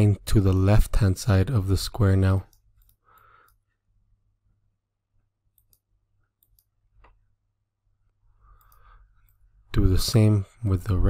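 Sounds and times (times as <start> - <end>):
computer mouse clicks: 2.5 - 3.6, 5.5 - 7.2, 8.5 - 9.4.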